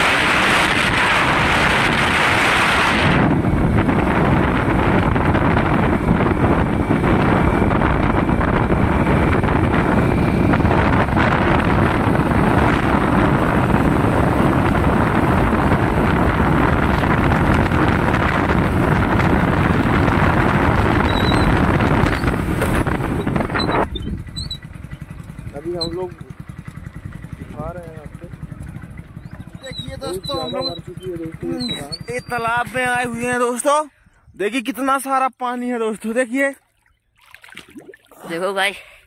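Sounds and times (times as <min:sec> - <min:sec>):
wind rushing over microphone: 0:00.0 - 0:25.5
motorcycle engine running: 0:00.0 - 0:33.5.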